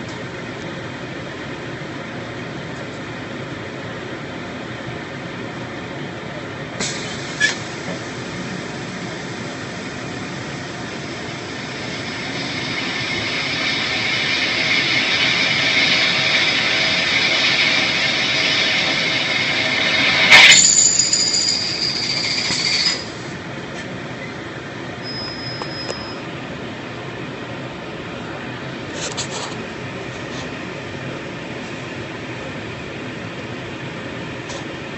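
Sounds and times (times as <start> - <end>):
high machine whine: 6.8 - 29.0
machine squealing: 10.7 - 23.4, 25.0 - 26.2.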